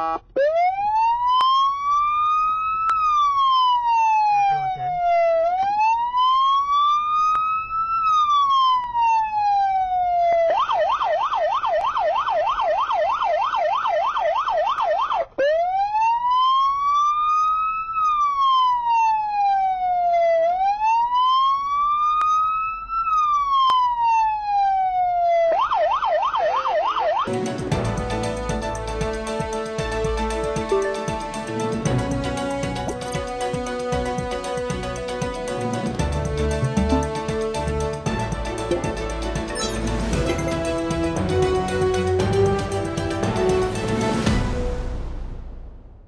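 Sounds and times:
police siren wailing and yelping: 0:00.0 - 0:27.3, 0:36.6 - 0:37.5.

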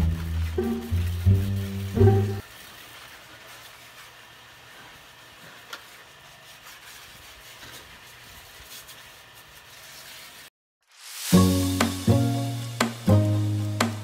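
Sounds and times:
pressure washer spray hiss: 0:10.9 - 0:14.0.

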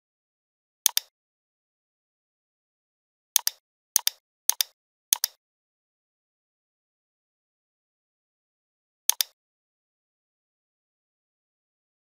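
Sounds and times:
computer mouse clicks: 0:00.9 - 0:01.1, 0:03.4 - 0:05.4, 0:09.1 - 0:09.4.

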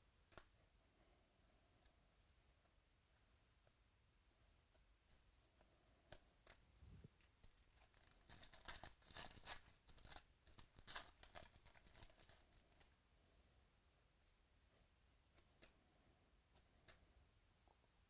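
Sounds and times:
foil wrapper crinkling: 0:07.8 - 0:12.5.

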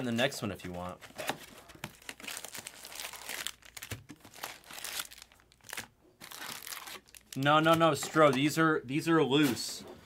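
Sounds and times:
foil packs crinkling: 0:00.8 - 0:08.0.

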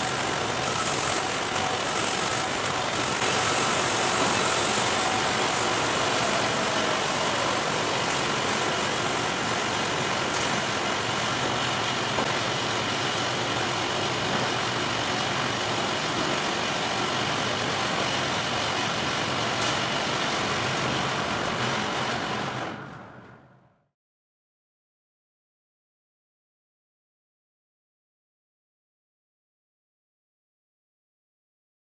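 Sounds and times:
sawmill machinery running: 0:00.0 - 0:23.4.

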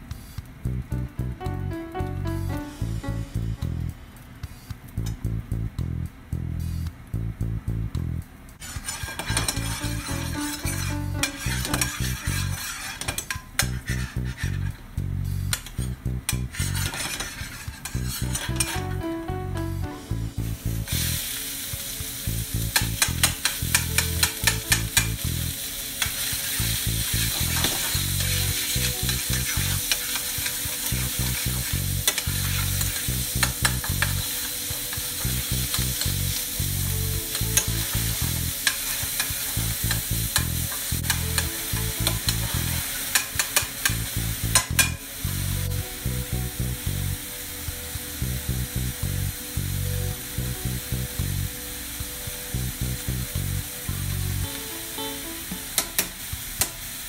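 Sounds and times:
meat sizzling in a frying pan: 0:08.6 - 0:14.6, 0:20.4 - 0:57.0
plastic spatula scraping a pan: 0:08.6 - 0:14.8, 0:16.5 - 0:18.8.

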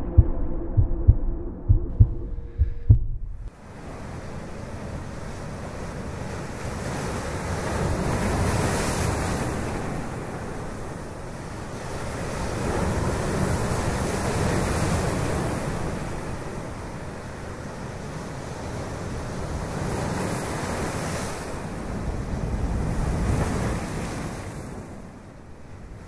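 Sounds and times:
wind noise on microphone: 0:00.0 - 0:05.6.

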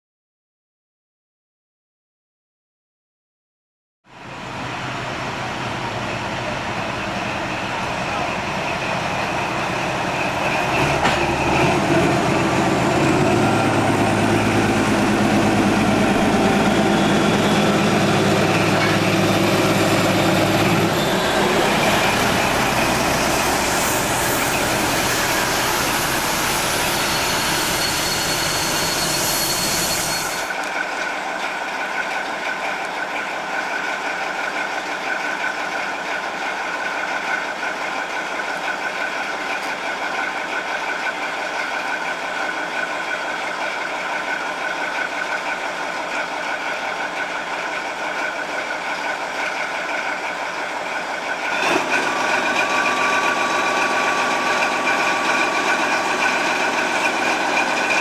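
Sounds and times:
diesel locomotive engine drone: 0:04.1 - 0:58.0.

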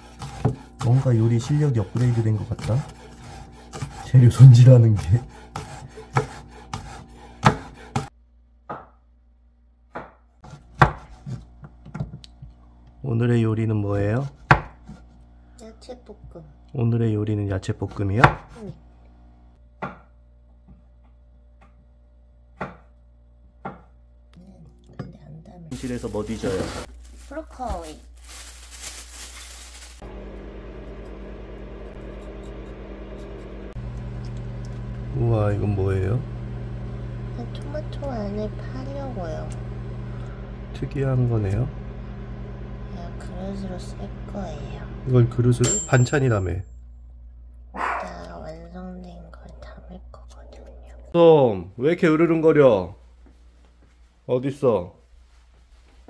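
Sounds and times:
knife chopping on cutting board: 0:00.1 - 0:08.1, 0:09.9 - 0:12.1, 0:14.2 - 0:15.1, 0:18.2 - 0:18.6, 0:22.6 - 0:22.9, 0:23.6 - 0:23.9
low electrical hum: 0:10.4 - 0:56.0.

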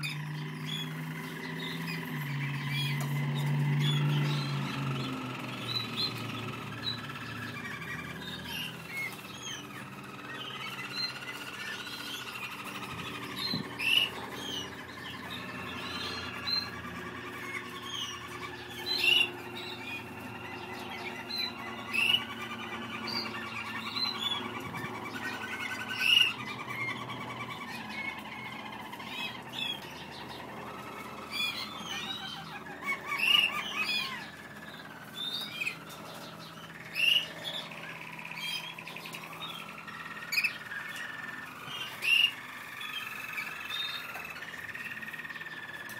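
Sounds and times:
canaries warbling song: 0:00.0 - 0:45.9
sharp loud bird chirps: 0:00.0 - 0:45.9.

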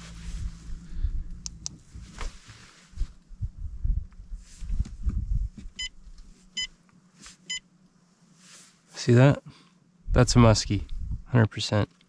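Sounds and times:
low rumbling: 0:00.0 - 0:06.3, 0:10.0 - 0:11.4.

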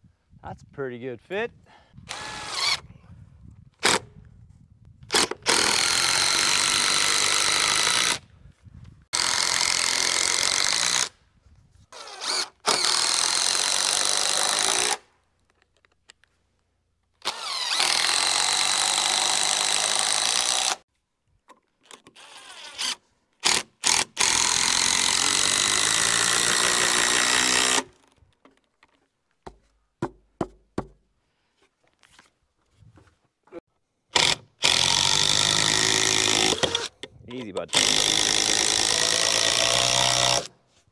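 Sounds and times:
handheld power tool whining: 0:02.1 - 0:02.9, 0:05.1 - 0:08.2, 0:11.9 - 0:15.0, 0:17.2 - 0:20.8, 0:21.8 - 0:28.0, 0:34.1 - 0:37.1, 0:37.7 - 0:40.5.

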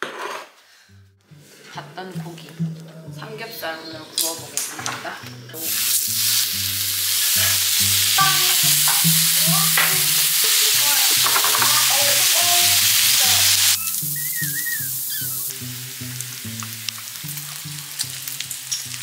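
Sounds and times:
meat sizzling in a pan: 0:05.6 - 0:19.0.

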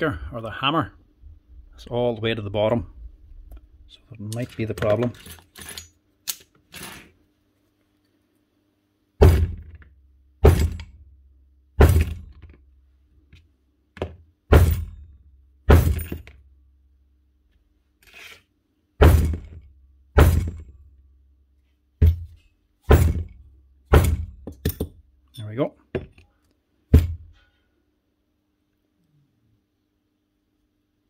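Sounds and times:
heavy knocks on rotary hammer: 0:09.2 - 0:09.8, 0:10.4 - 0:11.0, 0:11.8 - 0:12.6, 0:14.0 - 0:14.9, 0:20.2 - 0:20.7, 0:22.9 - 0:24.9.

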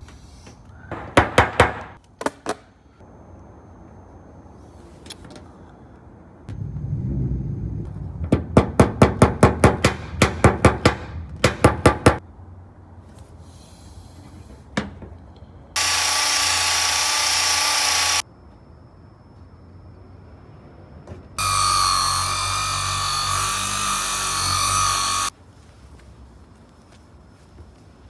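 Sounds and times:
loud steady whirring hiss: 0:15.8 - 0:18.2, 0:21.4 - 0:25.3.

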